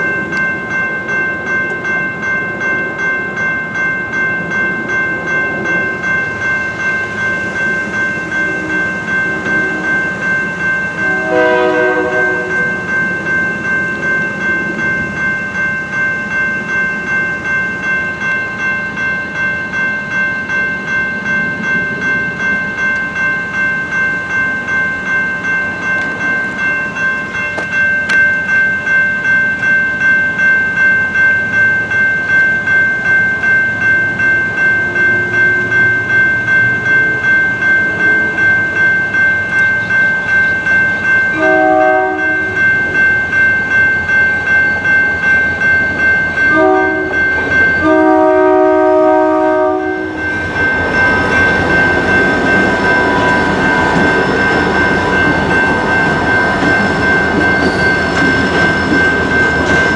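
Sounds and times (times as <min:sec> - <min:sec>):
electronic crossing bell ringing: 0:00.0 - 0:59.9
train rumbling over crossing: 0:00.0 - 0:59.9
locomotive horn blasts: 0:09.3 - 0:10.0, 0:11.0 - 0:12.7, 0:41.4 - 0:42.4, 0:46.5 - 0:47.2, 0:47.8 - 0:50.2.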